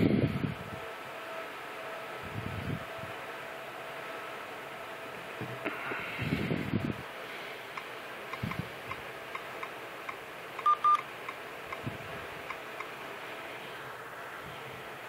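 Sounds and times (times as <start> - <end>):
short electronic beeps: 10.6 - 11.0.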